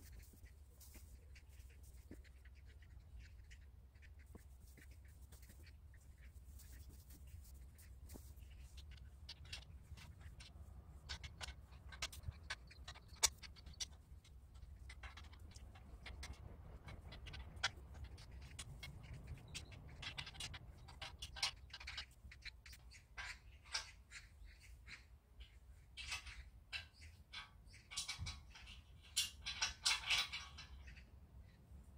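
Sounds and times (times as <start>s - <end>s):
low steady rumble: 0.0s - 23.7s
clicks and taps on steel pipe: 26.0s - 30.8s.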